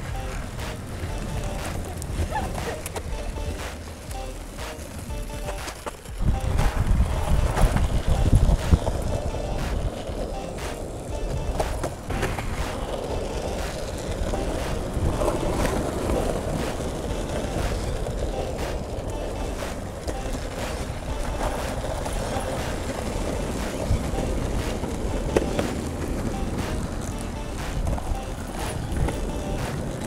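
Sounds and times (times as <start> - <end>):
wheels rolling over asphalt: 0.0 - 30.0
wheels clacking over cracks: 4.7 - 30.0.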